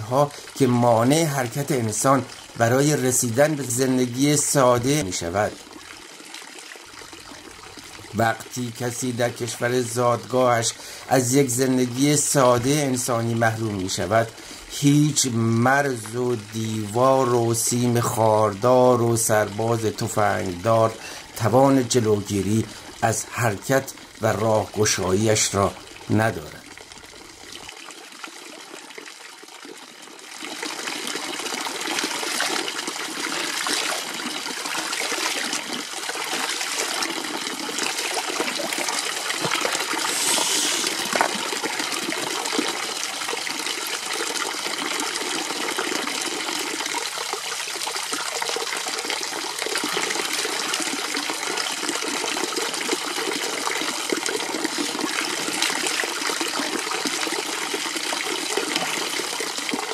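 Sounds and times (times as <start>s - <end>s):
water splashing into stone trough: 30.4s - 59.9s.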